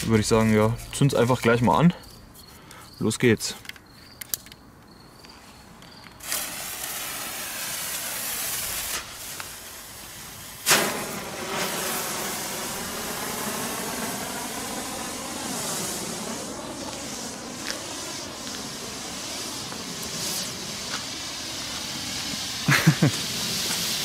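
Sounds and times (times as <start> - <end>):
flare burning with loud hiss: 6.2 - 24.0.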